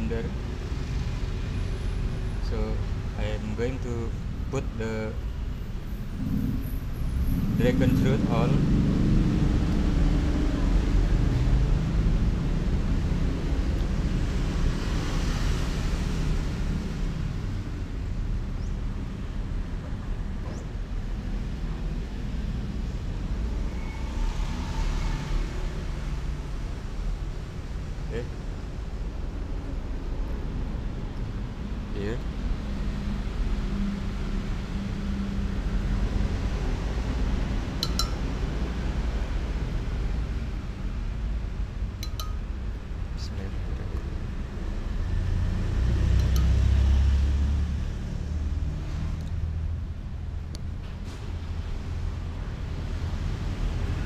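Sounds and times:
low outdoor rumble: 2.4s - 15.0s
metal spoon clinking on jar: 37.8s - 38.3s, 42.0s - 42.5s, 46.2s - 46.6s.

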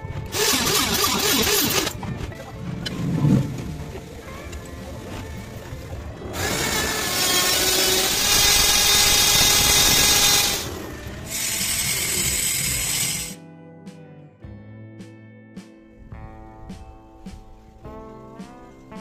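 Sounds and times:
angle grinder grinding metal: 0.3s - 2.0s, 6.3s - 13.4s.

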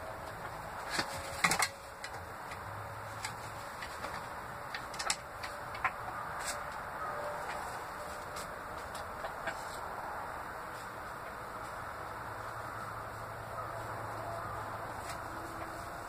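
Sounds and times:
hens knocking on wooden roosts: 3.8s - 6.2s.

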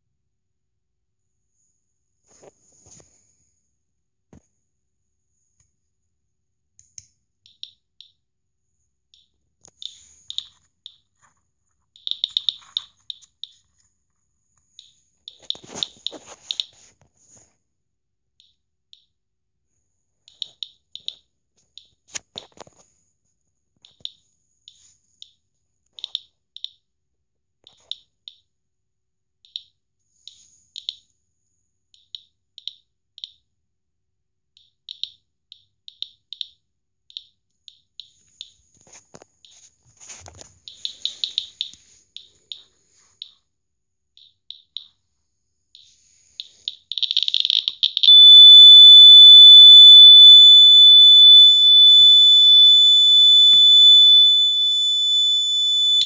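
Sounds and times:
high beeps of radiation meter: 46.7s - 56.0s.

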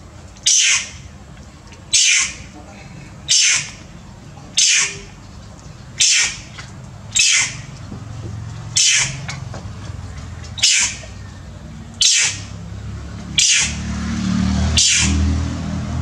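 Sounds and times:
low steady hum: 0.0s - 14.2s
monkey shrieking: 0.4s - 1.0s, 1.9s - 2.5s, 3.3s - 3.8s, 4.6s - 5.2s, 6.0s - 6.5s, 7.2s - 7.7s, 8.8s - 9.3s, 10.6s - 11.0s, 12.0s - 12.5s, 13.4s - 13.8s, 14.8s - 15.2s.

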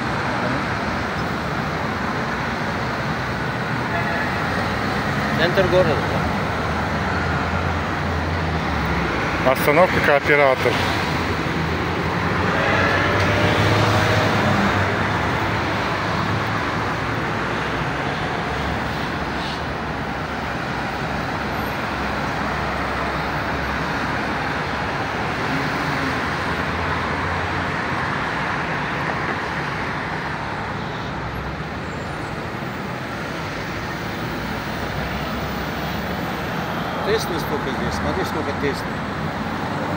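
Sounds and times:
traffic driving past: 0.0s - 39.9s.

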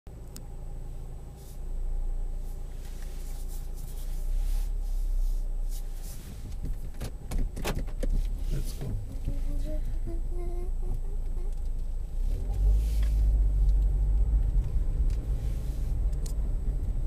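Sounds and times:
car engine idling: 0.1s - 17.0s
faint hum: 8.4s - 17.0s.

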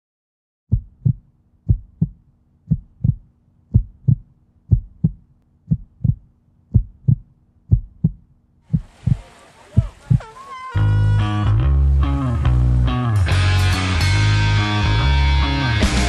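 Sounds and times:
heartbeat thumps: 0.7s - 10.3s.

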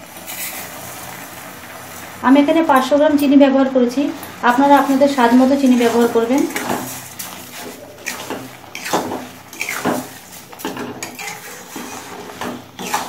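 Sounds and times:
metal spatula scraping metal pan: 4.5s - 13.0s.

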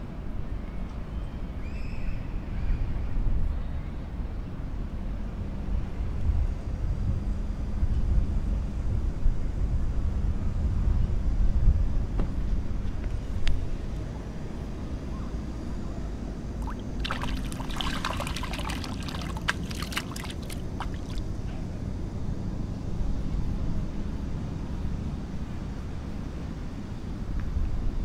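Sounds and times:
water splashing and dripping: 16.6s - 21.3s.

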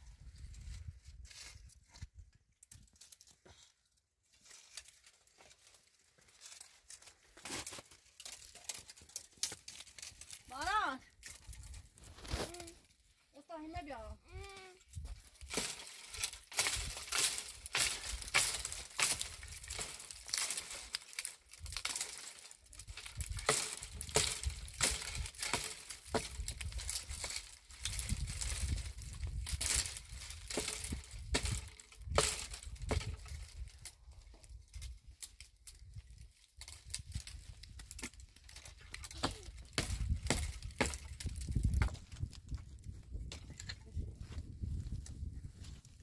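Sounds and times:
crackling and clicking: 7.7s - 12.9s, 14.6s - 34.0s.

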